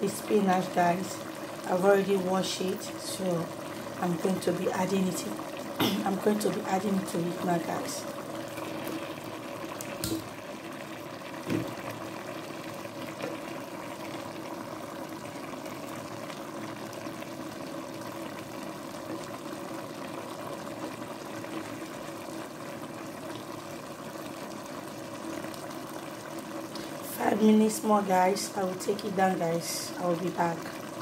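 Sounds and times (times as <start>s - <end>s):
stew bubbling in a pot: 0.0s - 31.0s.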